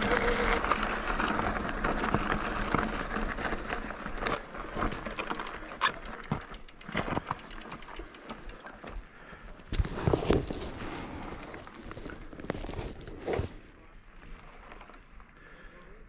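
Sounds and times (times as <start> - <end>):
wind and tyre noise: 0.0 - 15.5
bike knocks and rattles over rocks: 0.3 - 9.1.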